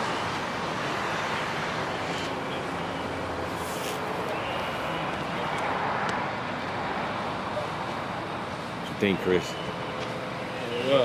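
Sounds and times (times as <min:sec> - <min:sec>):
vehicle engine: 0:00.0 - 0:11.0.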